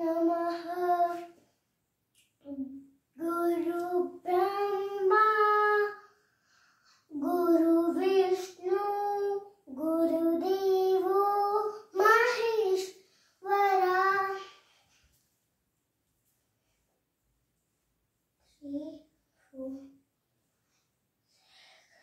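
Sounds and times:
child singing unaccompanied: 0.0s - 1.4s, 2.4s - 6.1s, 7.0s - 14.7s, 18.5s - 20.0s.

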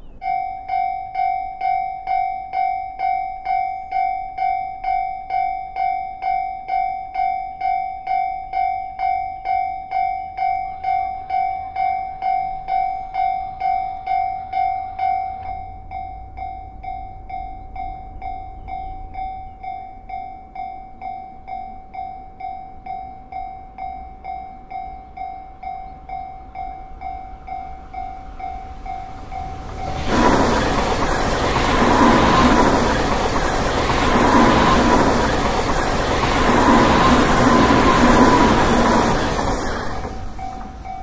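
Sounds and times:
level-crossing warning bell ringing: 0.0s - 41.0s
electric train passing: 9.3s - 41.0s.

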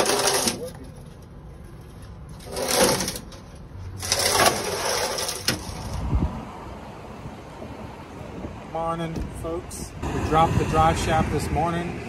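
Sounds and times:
heavy object scraping over concrete: 0.0s - 6.6s.

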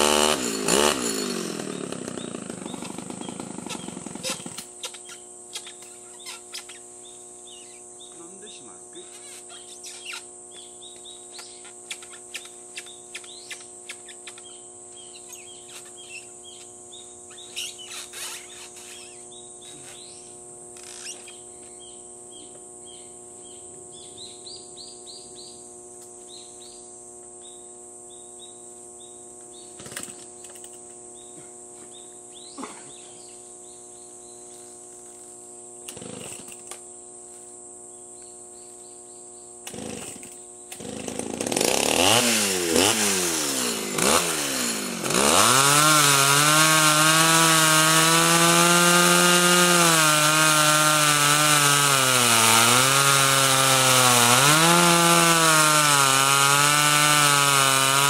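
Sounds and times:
small birds chirping: 1.6s - 29.9s, 31.0s - 34.8s.

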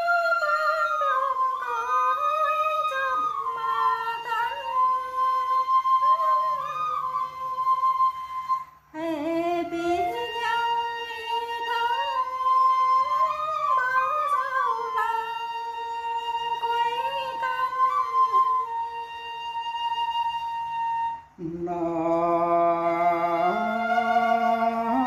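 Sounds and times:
woman singing folk song: 8.9s - 12.5s.

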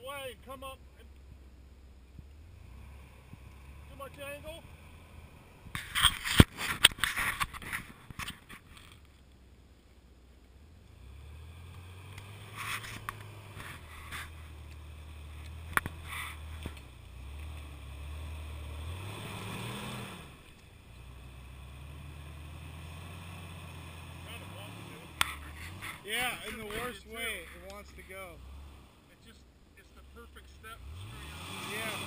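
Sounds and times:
engine running and revving: 2.1s - 7.7s, 10.8s - 32.0s
tyres scraping and knocking on rocks: 5.7s - 9.2s, 12.2s - 14.7s, 25.2s - 28.2s.

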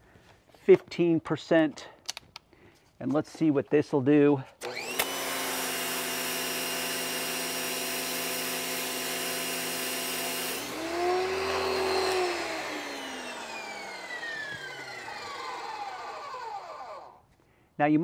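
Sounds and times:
pressure washer motor humming: 4.6s - 17.2s.

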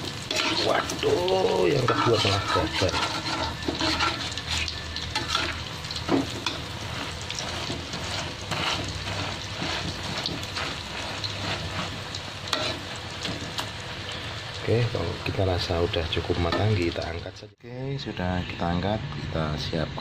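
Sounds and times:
omelette sizzling in hot oil: 0.0s - 17.4s
metal spatula scraping a pan: 0.1s - 13.8s.

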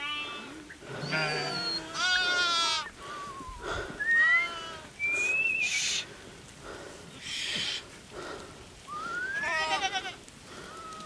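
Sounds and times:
sheep bleating: 0.0s - 2.9s, 9.3s - 10.2s.

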